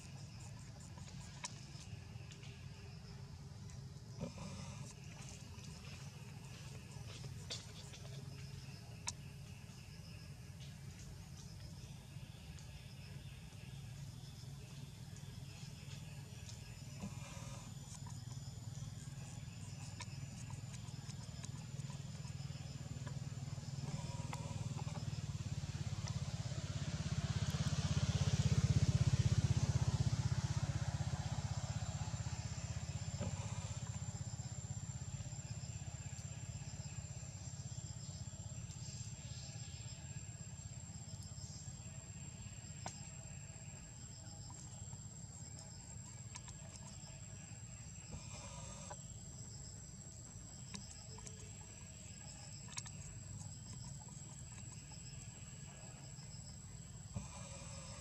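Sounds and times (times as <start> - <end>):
motor vehicle passing by: 22.7 - 35.2.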